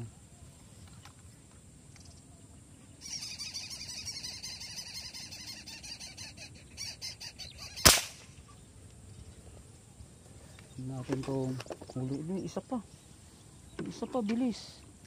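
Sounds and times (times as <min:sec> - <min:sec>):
bird chattering rapidly: 0:03.0 - 0:08.0
airgun firing crack: 0:07.8 - 0:08.4.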